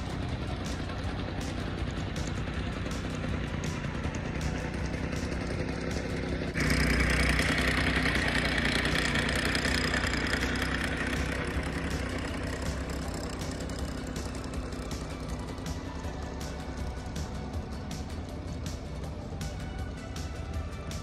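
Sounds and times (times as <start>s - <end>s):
reel mower whirring hiss: 0.0s - 21.0s
small mower engine running: 0.0s - 21.0s.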